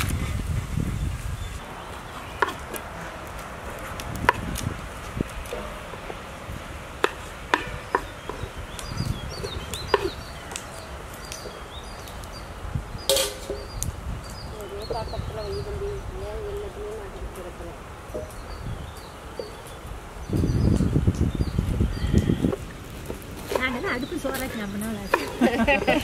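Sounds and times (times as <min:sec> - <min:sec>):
small birds chirping: 0:00.8 - 0:26.0
cooking utensils clinking: 0:13.1 - 0:13.7.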